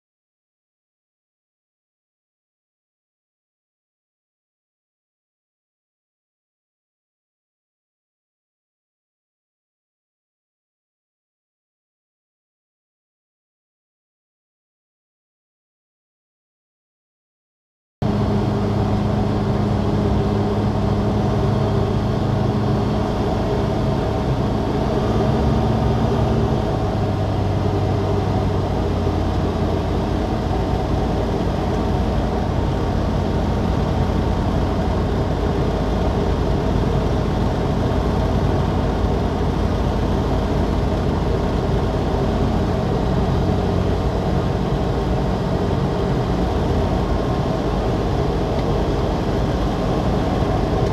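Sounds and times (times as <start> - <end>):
aircraft engine and propeller droning: 18.0 - 50.9.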